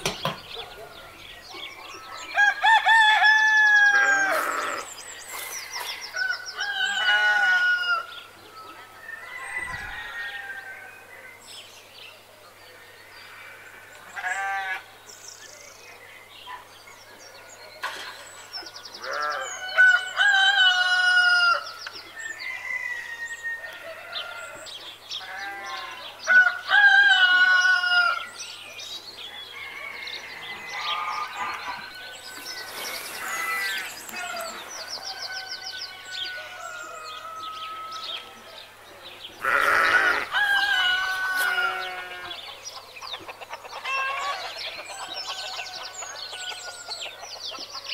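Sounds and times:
rooster crowing: 6.2s - 8.2s, 29.5s - 38.2s, 39.4s - 42.4s
chickens clucking: 39.9s - 47.9s.

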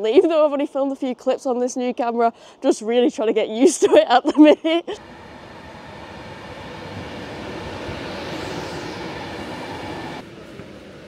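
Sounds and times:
electric train rumble and rush: 5.0s - 11.0s
high whine: 5.0s - 11.0s.

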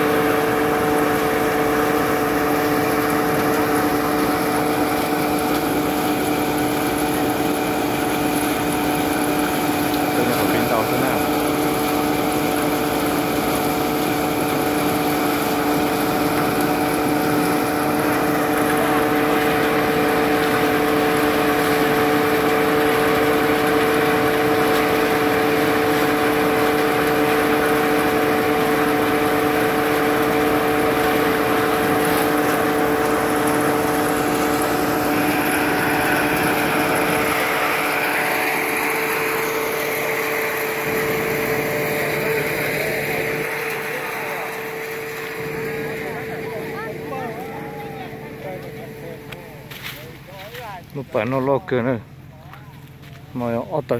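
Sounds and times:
threshing machine humming and rushing: 0.0s - 53.9s.

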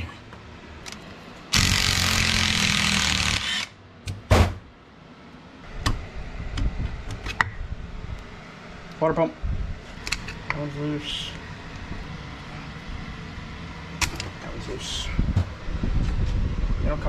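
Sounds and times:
loud steady noise: 1.5s - 4.5s
clicks and knocks of tools: 10.0s - 10.6s, 14.0s - 14.3s.

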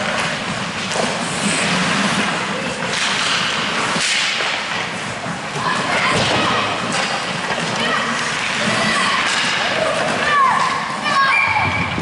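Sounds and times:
stick hitting puck: 0.0s - 4.9s
skate blades scraping ice: 0.0s - 11.6s
spectators' voices: 2.0s - 12.0s.

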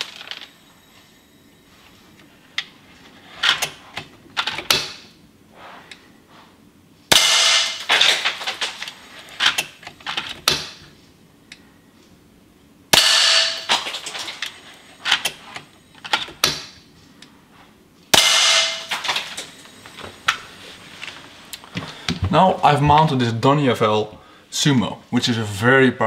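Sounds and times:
lead fragments shattering: 7.1s - 8.9s, 12.9s - 14.6s.

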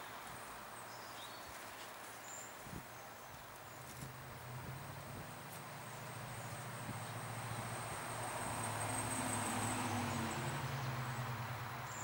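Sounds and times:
distant engine passing by: 3.9s - 12.0s.

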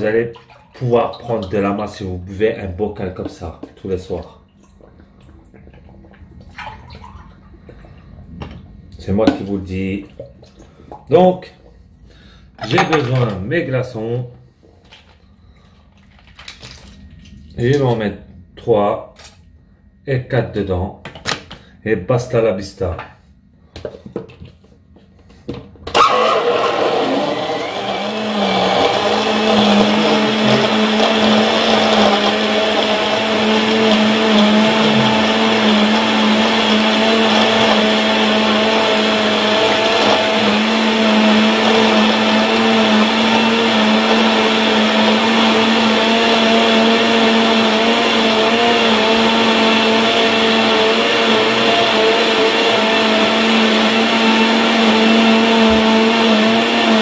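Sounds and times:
blender crushing ice: 25.9s - 57.0s.

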